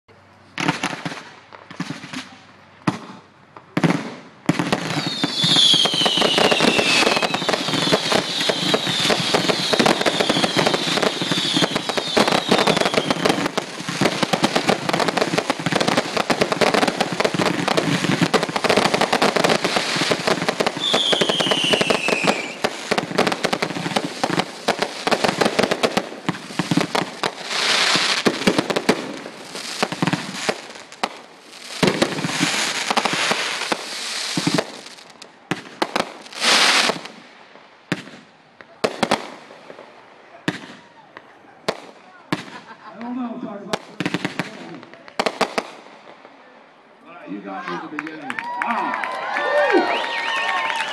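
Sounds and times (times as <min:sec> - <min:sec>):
fireworks bangs and crackling: 0:00.5 - 0:46.5
falling firework whistles: 0:04.8 - 0:14.2, 0:16.3 - 0:23.2, 0:36.3 - 0:37.1, 0:49.6 - 0:50.9.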